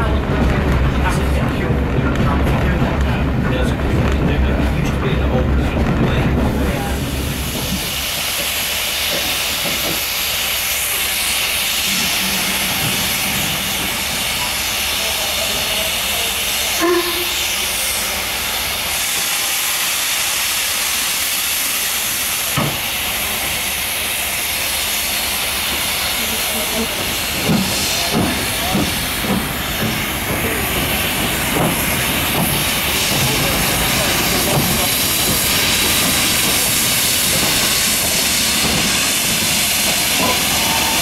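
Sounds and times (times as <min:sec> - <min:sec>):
steam locomotive hissing: 0:00.0 - 0:41.0.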